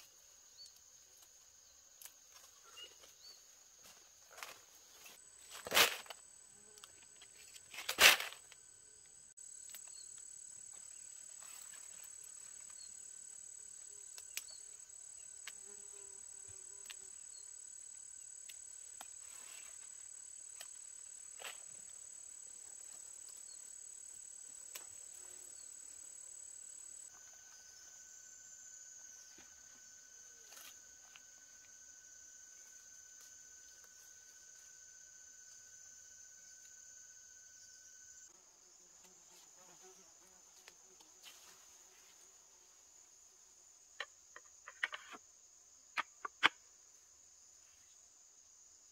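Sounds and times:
insects trilling: 0.0 - 48.9
loud sharp rustle: 7.4 - 8.5.

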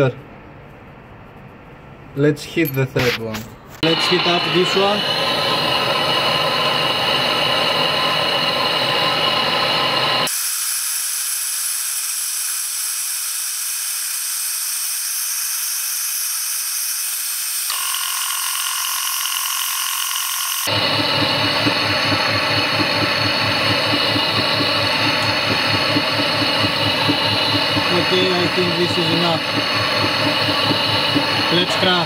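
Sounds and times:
steady high whine: 2.8 - 10.3, 17.7 - 32.0
gas torch flame hissing: 3.8 - 17.6, 20.6 - 32.0.

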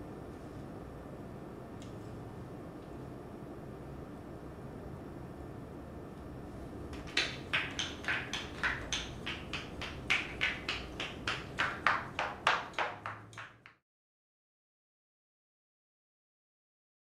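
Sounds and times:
low room hum: 0.0 - 13.8
puppet feet tapping on wood: 6.9 - 13.8.

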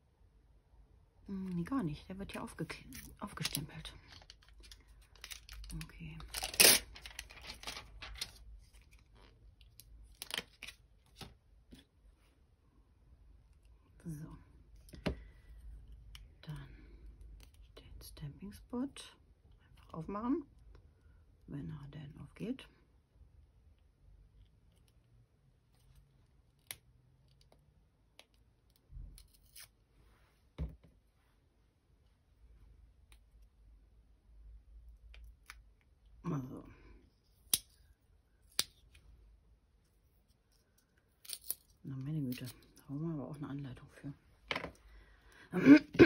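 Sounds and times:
thin plastic crackling: 2.8 - 11.3
plastic rustling: 3.3 - 8.7.

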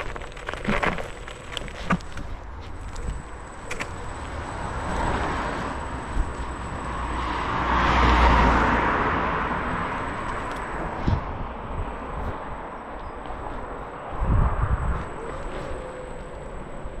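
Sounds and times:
low rumble of wind and wheels: 0.0 - 17.0
car driving past: 4.1 - 10.3.

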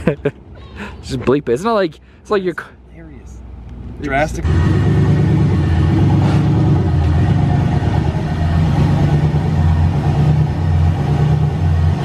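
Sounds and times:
truck engine rumbling unevenly: 3.3 - 12.0.

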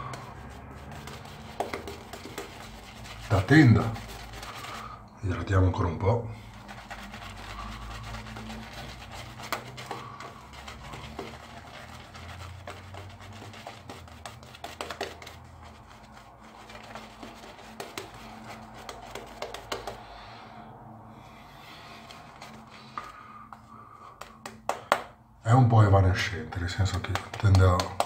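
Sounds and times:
shaving brush scrubbing lather: 0.0 - 5.0, 6.4 - 20.1.

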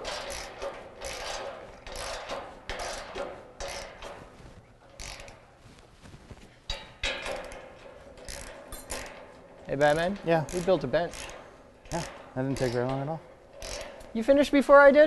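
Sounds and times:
ratchet wrench clicking: 0.0 - 4.2, 4.9 - 5.4, 6.7 - 9.2, 9.9 - 14.2.

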